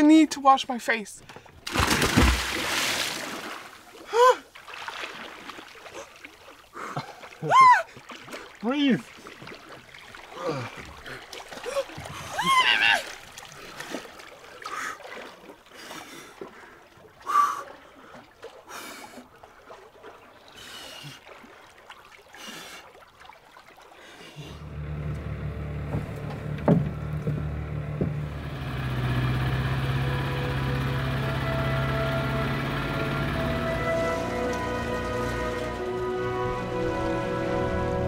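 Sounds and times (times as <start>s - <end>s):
person splashing in water: 1.4s - 24.6s
steady low hum: 24.6s - 35.6s.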